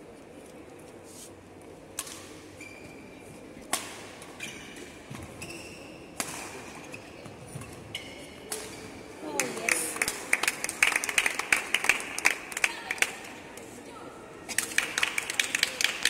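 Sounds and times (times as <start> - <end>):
racquet striking shuttlecock: 2.0 - 2.4, 6.2 - 6.8.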